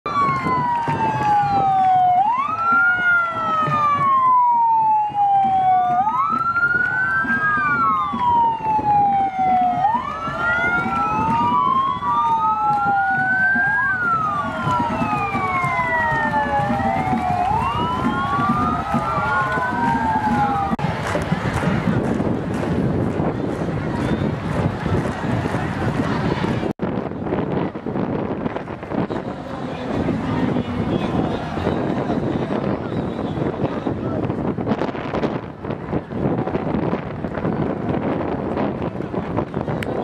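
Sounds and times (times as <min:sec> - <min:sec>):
police sirens wailing: 0:00.0 - 0:40.0.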